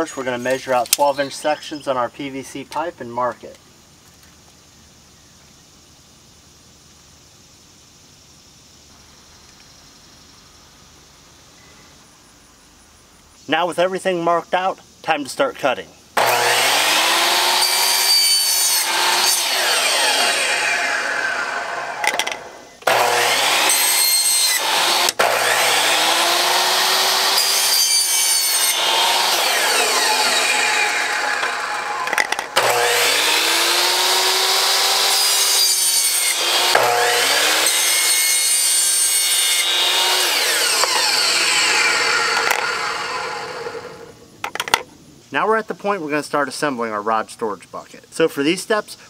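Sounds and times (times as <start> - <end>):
miter saw motor spinning: 16.2 - 44.1.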